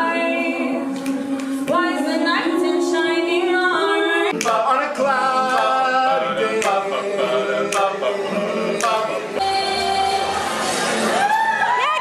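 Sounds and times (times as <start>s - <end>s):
men singing in close harmony: 0.0s - 9.5s.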